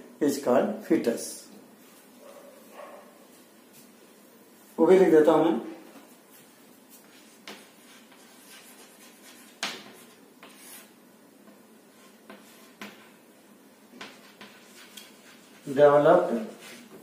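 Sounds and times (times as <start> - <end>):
chalk scratching on chalkboard: 6.3 - 11.0, 11.9 - 13.2, 13.9 - 17.0
chalk tapping on board: 7.0 - 10.9, 12.1 - 13.2, 13.9 - 15.8.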